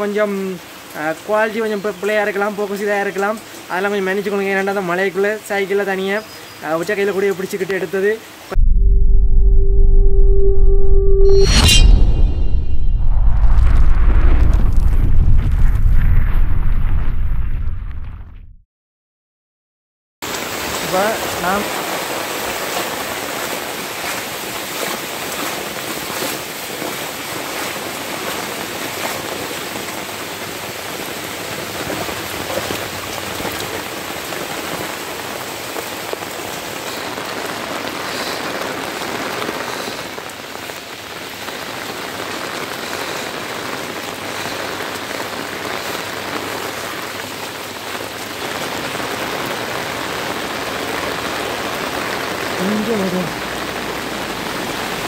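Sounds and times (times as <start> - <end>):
heavy rain on floodwater: 0.0 - 8.6, 20.2 - 55.0.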